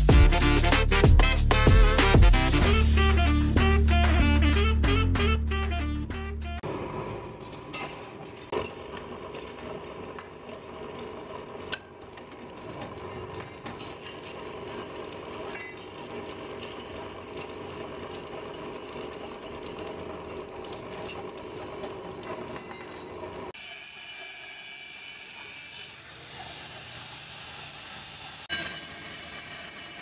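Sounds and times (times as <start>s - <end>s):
drill press cutting steel: 6.6s - 30.0s.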